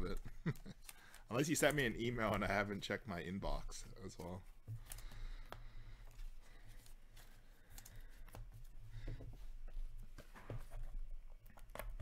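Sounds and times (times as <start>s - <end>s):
cards rustling: 0.0s - 9.1s.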